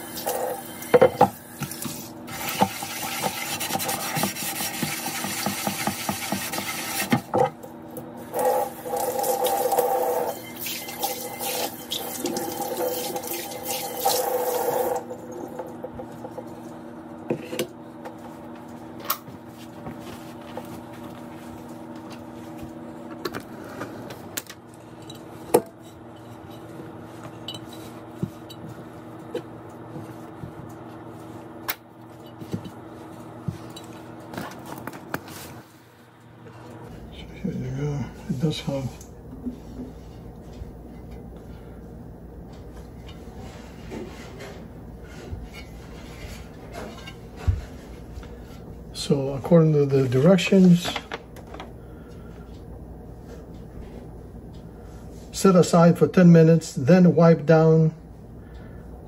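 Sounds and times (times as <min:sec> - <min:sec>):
faucet running into steel sink: 0:08.4 - 0:15.1.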